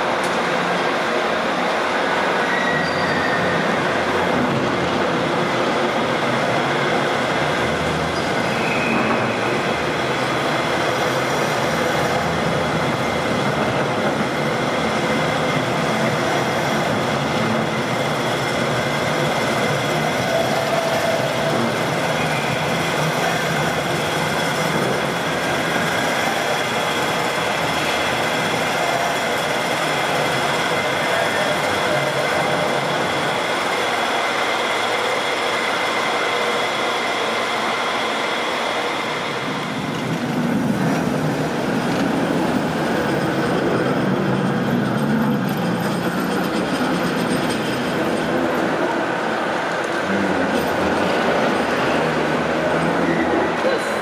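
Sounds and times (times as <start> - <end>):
tram wheels rumbling on rails: 0.0 - 54.0
faint wheel squeals: 2.4 - 3.8, 8.1 - 9.6.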